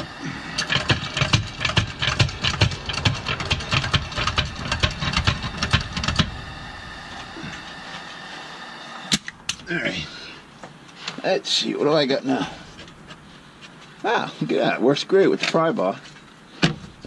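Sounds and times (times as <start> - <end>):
floor jack metal clicks and clatters: 0.6 - 6.3.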